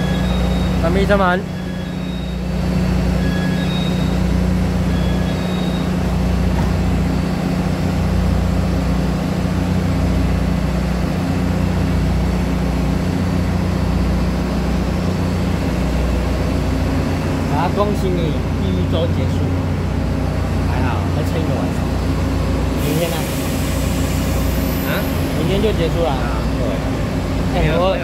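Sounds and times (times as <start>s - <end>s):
train diesel engine humming: 0.0s - 28.0s.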